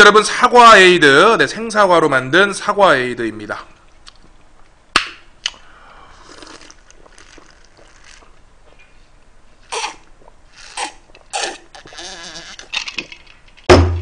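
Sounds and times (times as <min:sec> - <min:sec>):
person swallowing a drink: 0:05.4 - 0:08.4, 0:09.7 - 0:13.2.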